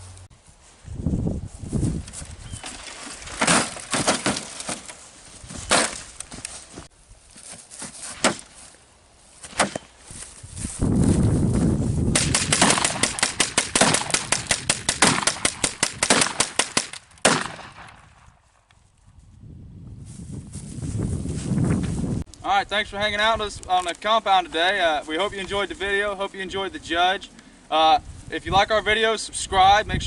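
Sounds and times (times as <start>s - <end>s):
gunshots: 12.2s - 18.0s.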